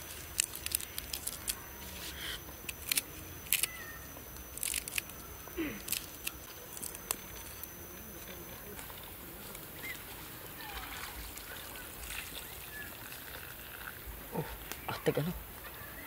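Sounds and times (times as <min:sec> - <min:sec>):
leaves snapping and tearing: 0:00.0 - 0:10.0
knife cutting stems: 0:04.4 - 0:07.5.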